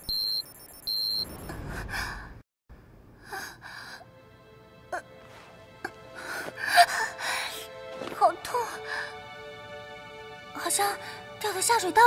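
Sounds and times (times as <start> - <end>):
high electronic beep: 0.0 - 1.5
soft dark background music: 3.2 - 12.0.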